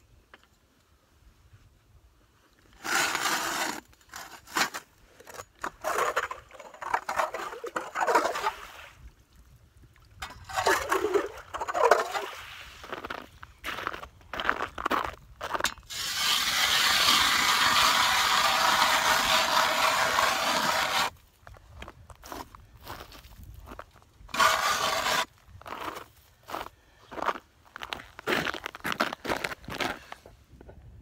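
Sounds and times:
ice auger drilling through ice: 0:02.8 - 0:08.8, 0:10.2 - 0:13.0, 0:15.8 - 0:21.2, 0:24.3 - 0:26.0.

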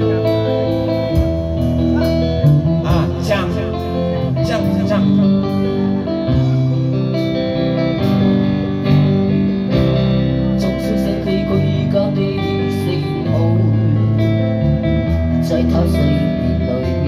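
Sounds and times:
bass guitar: 0:00.0 - 0:17.0
electric guitar chords: 0:00.0 - 0:17.0.

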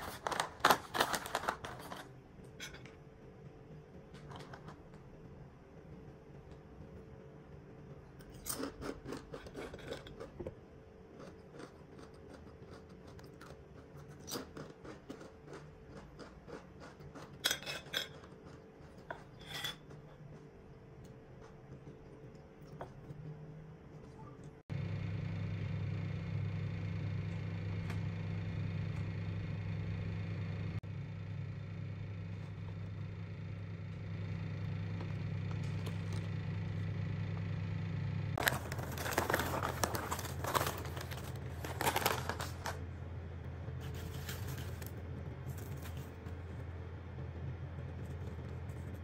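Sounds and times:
chip bag rustling: 0:00.0 - 0:02.1, 0:38.4 - 0:42.8, 0:43.8 - 0:46.2
steady low hum: 0:00.0 - 0:49.0.

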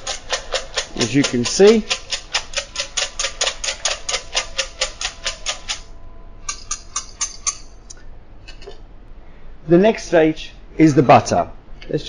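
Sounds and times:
whisk clicking in metal bowl: 0:00.0 - 0:05.8, 0:06.5 - 0:07.7.

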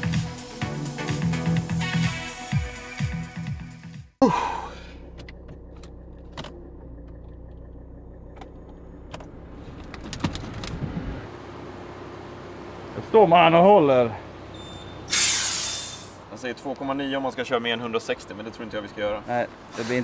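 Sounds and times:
car engine humming inside cabin: 0:04.2 - 0:15.1.

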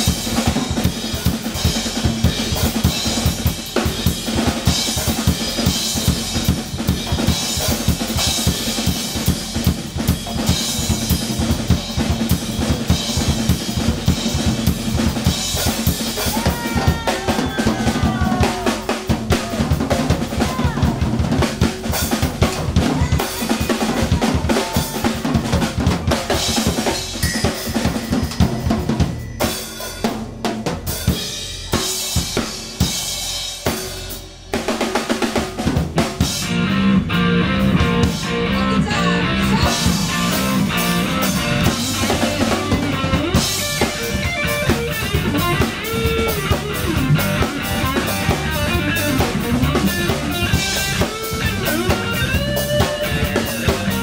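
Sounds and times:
live rock band playing: 0:00.0 - 0:54.0
sliding lead guitar notes: 0:36.4 - 0:54.0.

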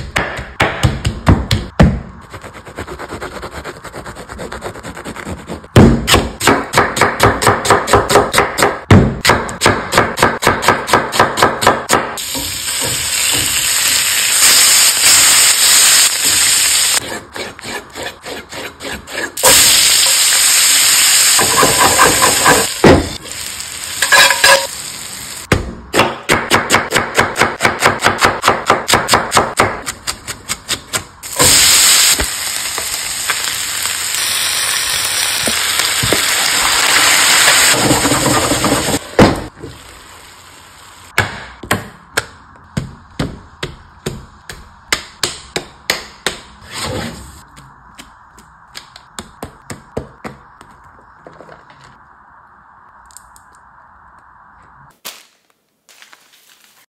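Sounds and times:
food sizzling in a skillet: 0:12.2 - 0:17.0, 0:19.4 - 0:25.5, 0:31.3 - 0:39.0.

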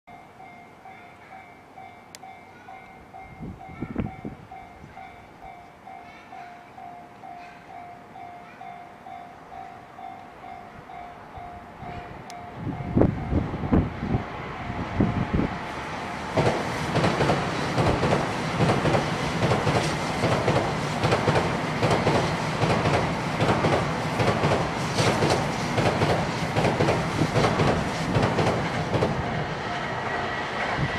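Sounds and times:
level crossing warning bell ringing: 0:00.1 - 0:13.5
train passing close by: 0:00.1 - 0:30.9.

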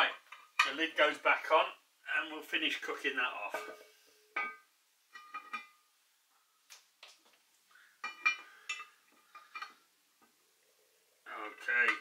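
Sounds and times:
metal lid lifter clinking on iron: 0:03.5 - 0:04.6.

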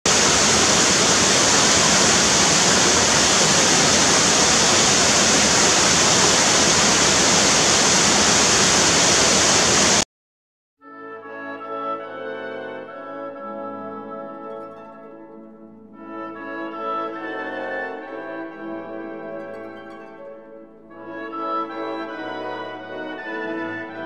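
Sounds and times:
waterfall rushing into pool: 0:00.1 - 0:10.0.

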